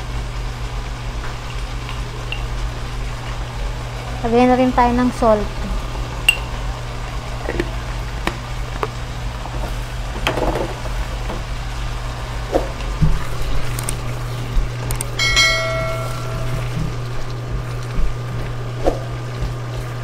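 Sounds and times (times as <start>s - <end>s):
steady low hum: 0.0s - 20.0s
vegetables cooking in a wok: 0.0s - 20.0s
electronic chime: 15.2s - 16.9s.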